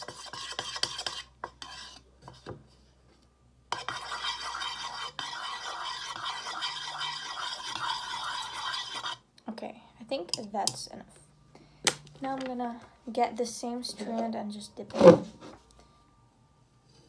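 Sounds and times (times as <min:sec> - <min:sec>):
brush swishing in water: 0:04.0 - 0:09.2.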